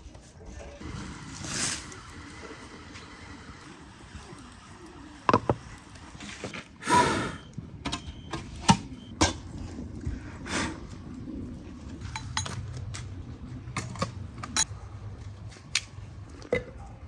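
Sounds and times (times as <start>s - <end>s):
blowing into pipe: 6.8s - 7.5s.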